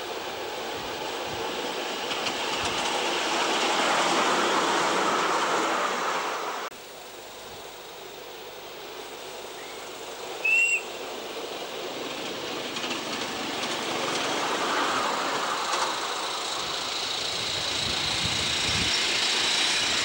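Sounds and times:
train wheels running on rails: 0.0s - 6.7s, 8.8s - 20.0s
short high train whistle: 10.4s - 10.9s.

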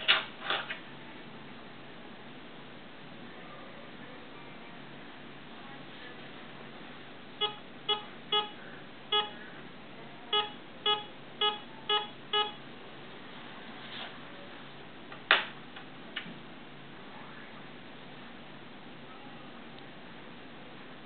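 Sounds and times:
metal detector beeps: 7.4s - 9.4s, 10.4s - 12.6s.

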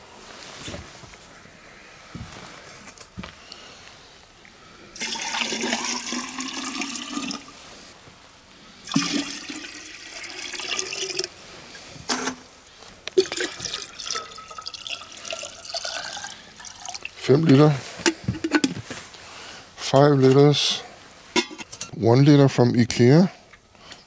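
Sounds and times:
water pouring into glass jar: 5.0s - 7.6s, 8.8s - 11.4s, 13.2s - 17.2s.

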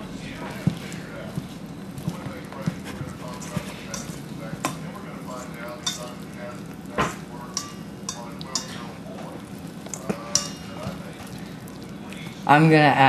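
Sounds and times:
whisk clinking in metal bowl: 3.2s - 6.3s, 7.5s - 9.0s, 9.9s - 11.4s.

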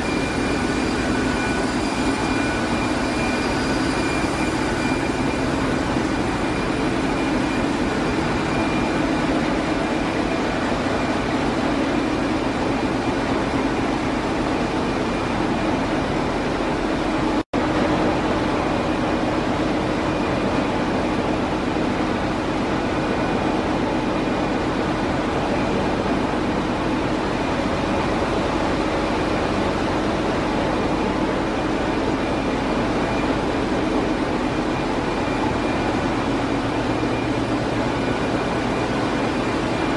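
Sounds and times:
engine room low drone: 0.0s - 39.9s
steady higher machine tones: 0.0s - 39.9s.

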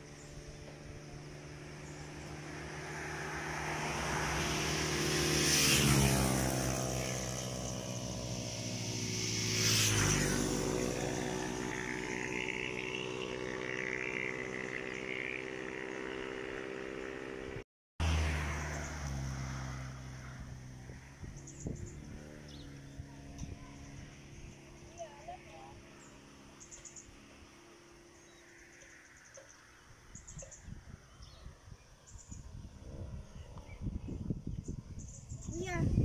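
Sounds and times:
engine running steadily: 0.0s - 5.4s
vehicles passing by: 0.0s - 36.0s.

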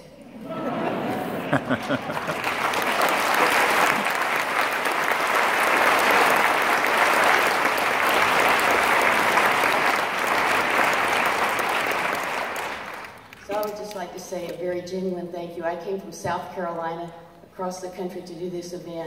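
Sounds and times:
audience applauding: 0.5s - 13.7s.

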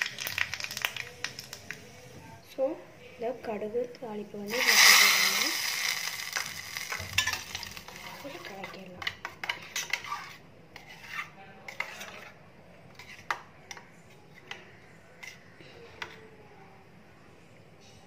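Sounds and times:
spoon scraping metal pot: 4.5s - 14.6s.

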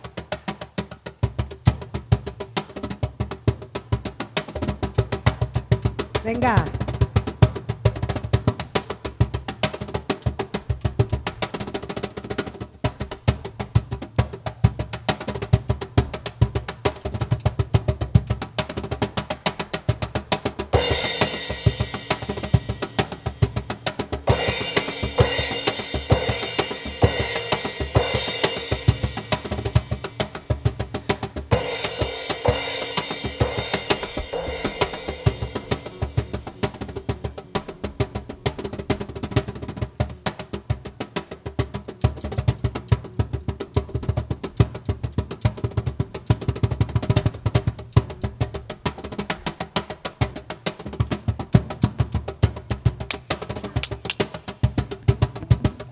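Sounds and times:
hand drums fast rhythm: 0.0s - 55.9s
cymbal sizzle: 31.5s - 36.7s.

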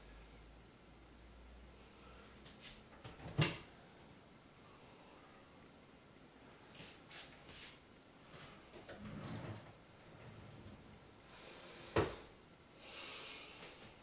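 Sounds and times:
cabinet door clicks and rustles: 3.0s - 3.7s.

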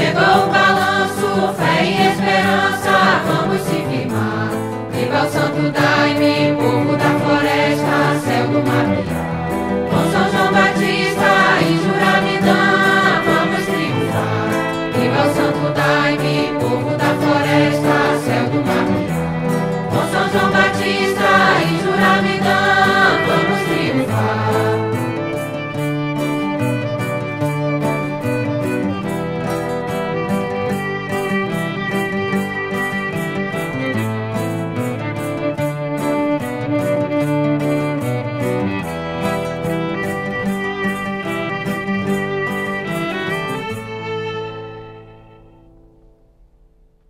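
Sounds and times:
group singing a hymn: 0.0s - 25.2s
sustained backing notes: 0.0s - 47.0s.

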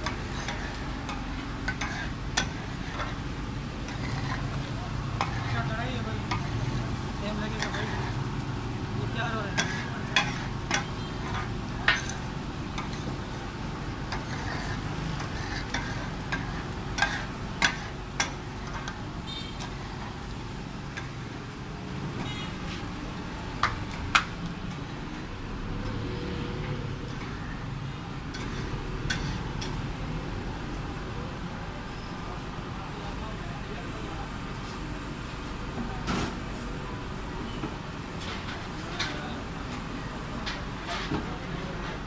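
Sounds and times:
street traffic noise: 0.0s - 42.0s.

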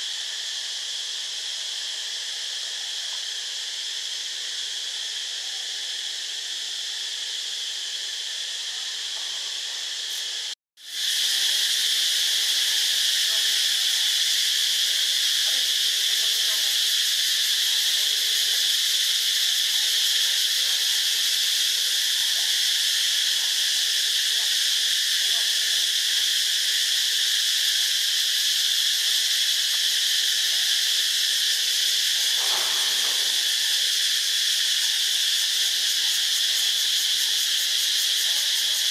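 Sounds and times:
high-pitched insect chorus: 0.0s - 38.9s.

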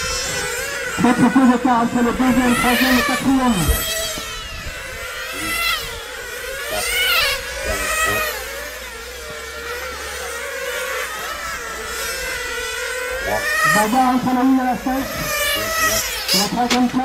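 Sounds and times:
small engines buzzing at high revs: 0.0s - 17.0s.

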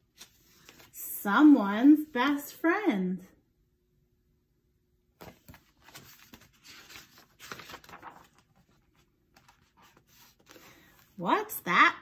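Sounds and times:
book pages rustling: 0.0s - 1.0s, 5.2s - 11.2s.

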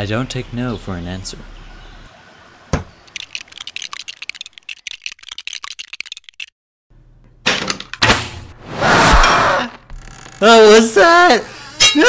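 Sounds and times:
toy ratcheting clicks: 3.1s - 6.5s.

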